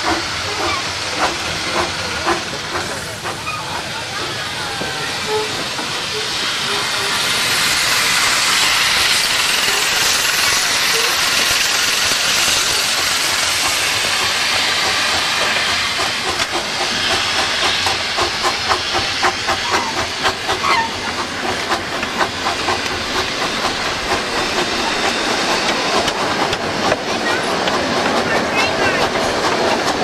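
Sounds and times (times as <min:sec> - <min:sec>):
steam hissing: 0:00.0 - 0:30.0
train wheels clicking: 0:00.0 - 0:30.0.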